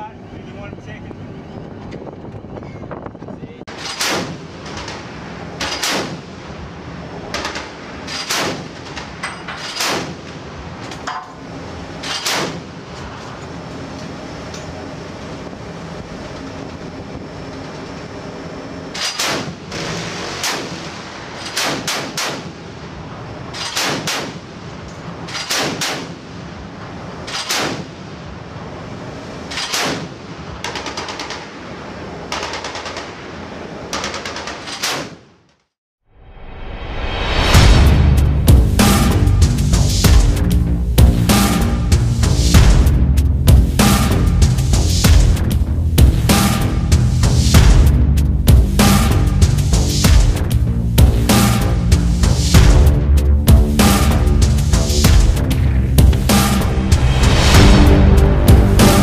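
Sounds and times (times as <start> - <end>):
wind: 0.0 - 59.0
chain gun firing shots: 3.7 - 5.0, 5.6 - 6.2, 7.3 - 10.3, 12.0 - 12.7, 18.9 - 22.6, 23.5 - 24.5, 25.3 - 26.2, 27.3 - 27.9, 29.5 - 31.5, 32.3 - 33.2, 33.9 - 35.3.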